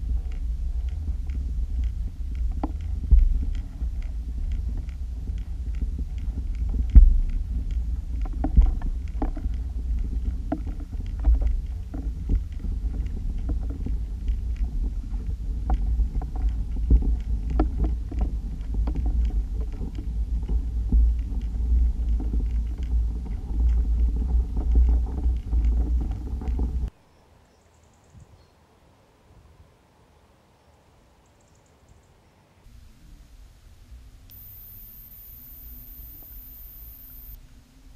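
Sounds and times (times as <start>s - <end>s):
small clicks and ticks: 0.0s - 26.9s, 34.3s - 37.4s.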